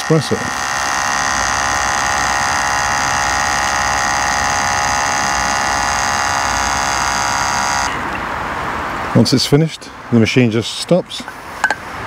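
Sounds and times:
espresso machine pump buzzing: 0.0s - 8.0s.

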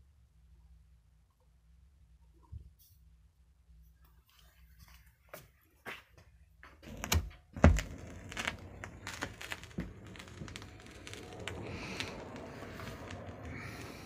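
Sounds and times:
steady record hiss: 0.0s - 14.0s
vinyl crackle and clicks: 6.6s - 14.0s.

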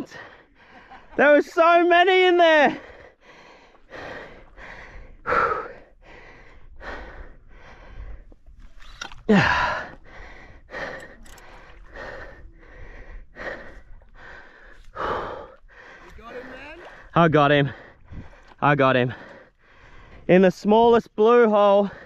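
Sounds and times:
man breathing hard: 2.7s - 8.6s, 9.3s - 16.2s, 17.7s - 20.3s.

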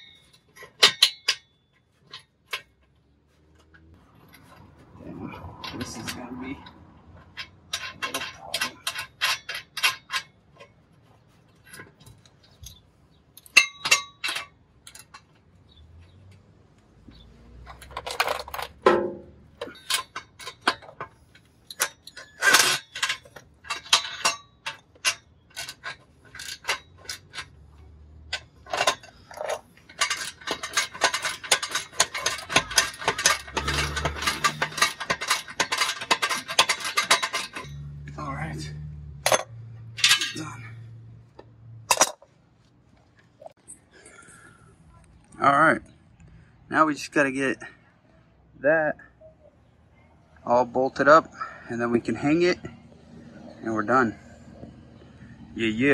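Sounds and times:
metal clinks and knocks: 0.0s - 44.6s.

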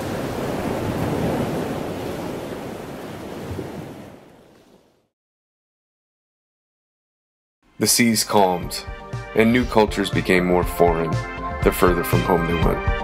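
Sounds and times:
waves breaking around ship: 0.0s - 5.2s.

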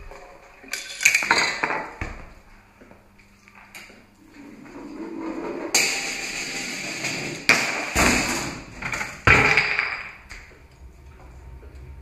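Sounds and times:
knocks and clattering: 5.8s - 10.6s.

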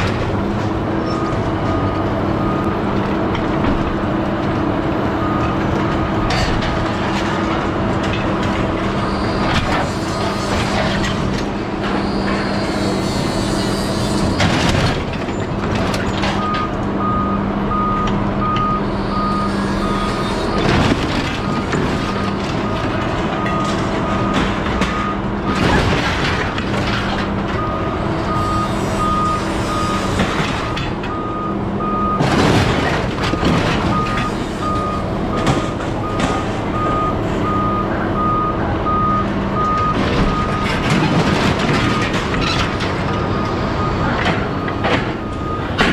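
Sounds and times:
diesel engine running: 0.0s - 45.9s
reversing alarm beeping: 1.0s - 2.8s, 5.1s - 5.7s, 16.2s - 20.7s, 21.3s - 25.7s, 27.6s - 32.4s, 33.1s - 45.9s.

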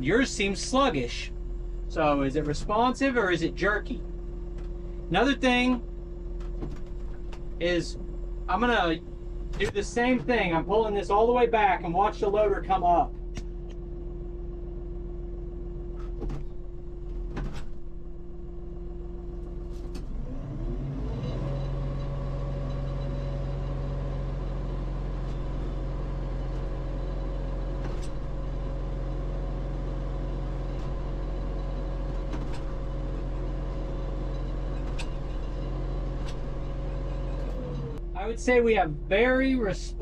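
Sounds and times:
tractor engine running: 0.0s - 40.0s.

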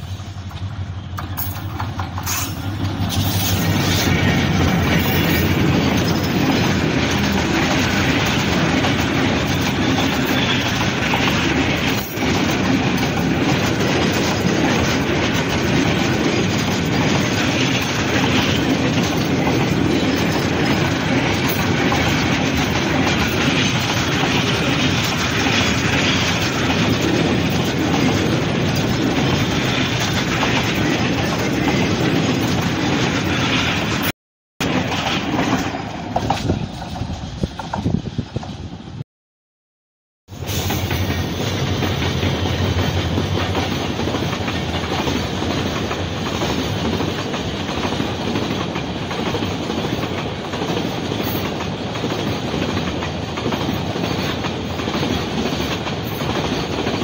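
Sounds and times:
wagons rolling on rails: 0.0s - 38.6s
diesel locomotive passing: 0.0s - 39.0s, 40.3s - 57.0s.

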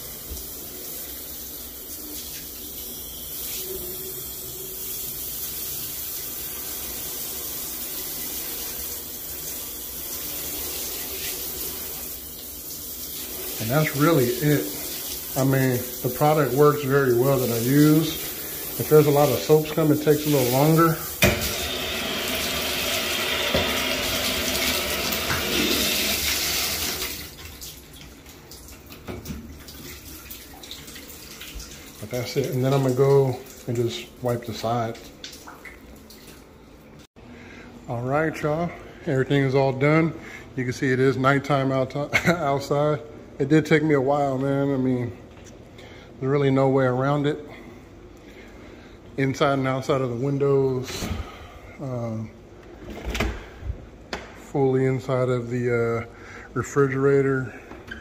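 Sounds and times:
shower water running: 0.0s - 37.1s.

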